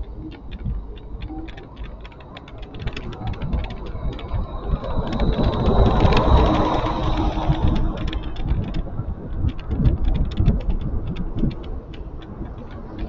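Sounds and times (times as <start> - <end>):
fast irregular clicking rattles: 0.0 - 13.0
road rumble: 0.0 - 13.0
rush of traffic: 0.0 - 13.0
faint high whine: 2.2 - 9.1.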